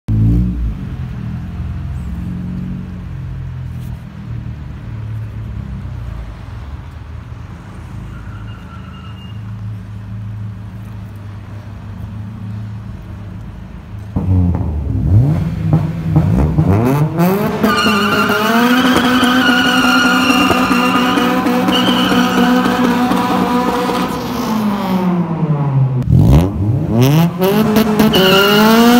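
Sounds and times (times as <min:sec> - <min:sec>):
car engines revving: 0:00.1 - 0:08.1, 0:09.5 - 0:28.9
car engines idling: 0:09.4 - 0:26.0.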